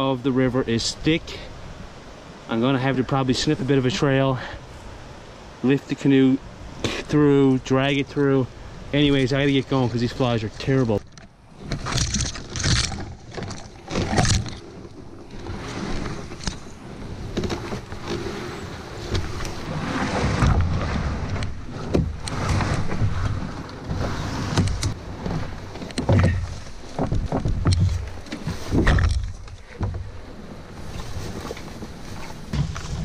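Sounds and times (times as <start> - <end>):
branches scraping against canoe hull: 6.6 - 33.0
knocks and twig crackles: 10.7 - 16.7.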